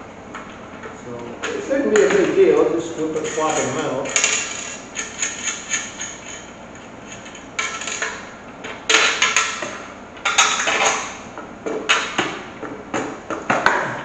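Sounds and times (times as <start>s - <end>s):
metal clinks and rattles: 3.2s - 8.1s.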